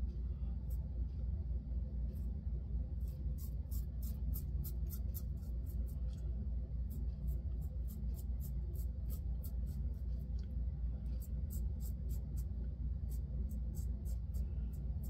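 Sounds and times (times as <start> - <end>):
razor scraping stubble: 3.0 - 6.2.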